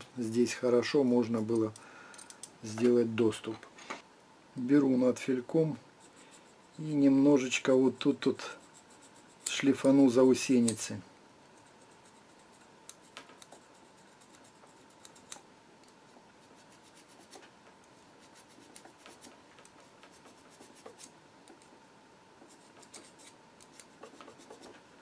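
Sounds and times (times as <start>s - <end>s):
faint steady hum: 0.0s - 25.0s
file scratching on steel: 6.0s - 10.1s, 11.5s - 15.4s, 18.2s - 21.1s, 22.5s - 24.7s.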